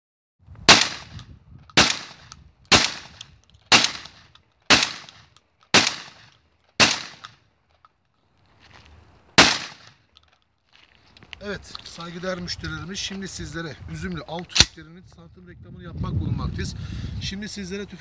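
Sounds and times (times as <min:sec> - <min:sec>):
shotgun blasts: 0:00.7 - 0:07.4, 0:09.4 - 0:10.0.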